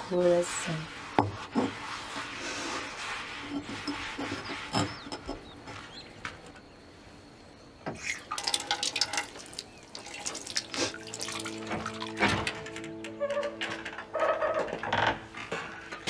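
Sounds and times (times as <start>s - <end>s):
water splashing and running: 8.0s - 12.4s
soft music: 10.0s - 16.0s.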